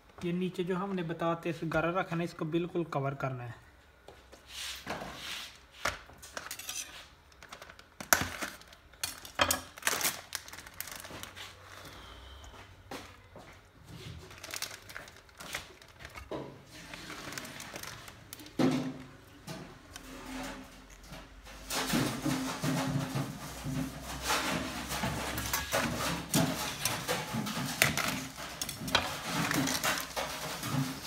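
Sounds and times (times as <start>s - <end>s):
metal pan and dishes clattering: 18.5s - 31.0s.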